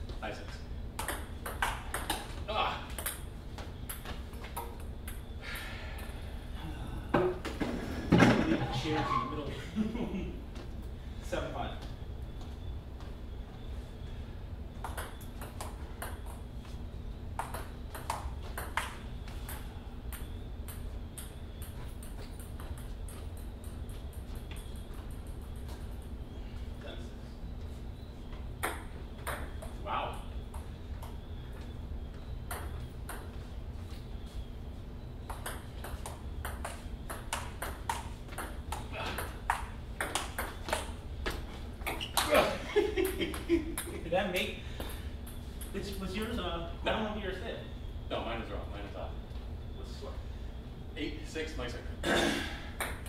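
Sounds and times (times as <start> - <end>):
low room hum: 0.0 - 53.0.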